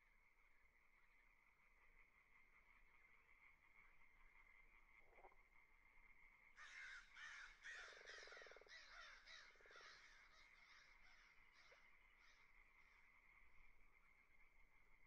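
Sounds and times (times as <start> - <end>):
faint bird calls: 5.8 - 14.7.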